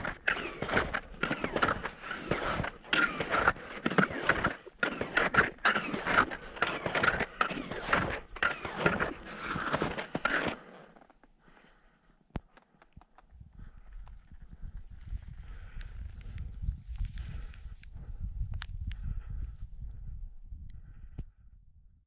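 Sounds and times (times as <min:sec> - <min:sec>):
crunching footsteps: 0:00.0 - 0:11.7.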